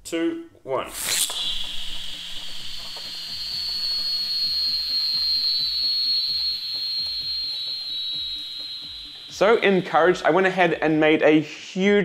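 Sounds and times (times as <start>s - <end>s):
airy hiss: 0.8s - 5.2s, 8.8s - 11.5s
spinning top whistling: 0.9s - 11.5s.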